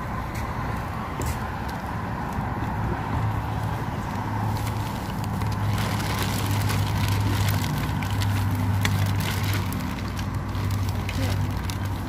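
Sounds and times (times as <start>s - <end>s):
trash crackling and rustling: 4.4s - 12.0s.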